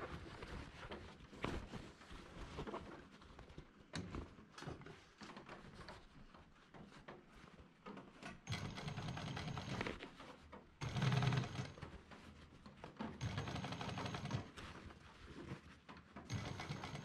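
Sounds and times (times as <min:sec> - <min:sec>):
industrial sewing machine stitching: 0:08.5 - 0:09.9, 0:10.8 - 0:11.8, 0:13.2 - 0:14.6, 0:16.3 - 0:17.0.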